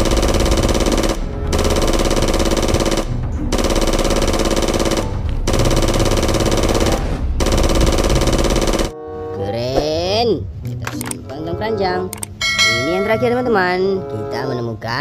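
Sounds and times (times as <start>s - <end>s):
toy gun rapid fire bursts: 0.0s - 8.9s.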